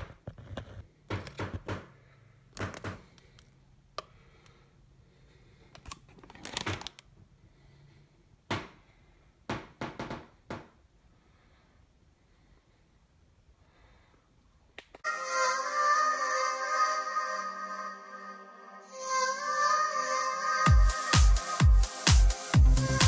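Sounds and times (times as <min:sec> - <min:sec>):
plastic packaging rustling: 0:05.8 - 0:07.1.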